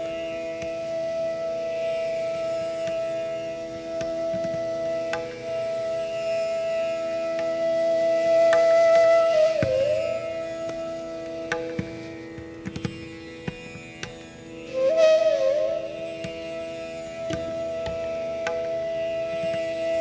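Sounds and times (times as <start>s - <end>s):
bamboo flute holding a long note: 0.0s - 20.0s
tanpura drone: 0.0s - 20.0s
sparse tabla strokes: 8.4s - 20.0s.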